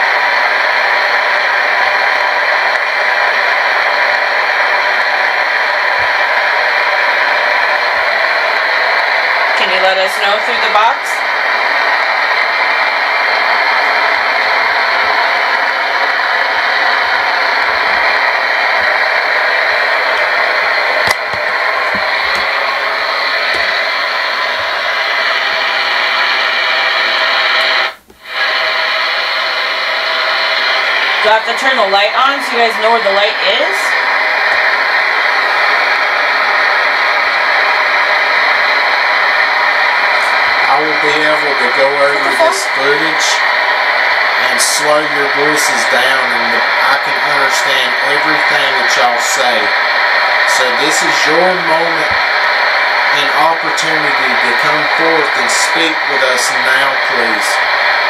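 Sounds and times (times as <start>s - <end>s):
radio static hiss: 0.0s - 58.0s.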